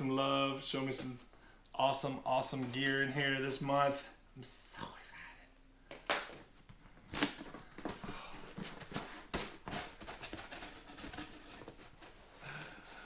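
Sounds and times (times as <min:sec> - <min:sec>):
cardboard crackling and scraping: 0:07.1 - 0:12.4.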